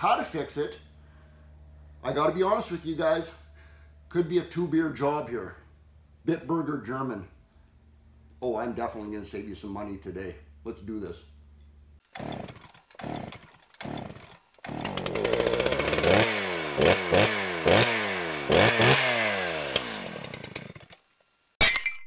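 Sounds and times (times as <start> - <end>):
small petrol engine revving: 12.0 - 21.1.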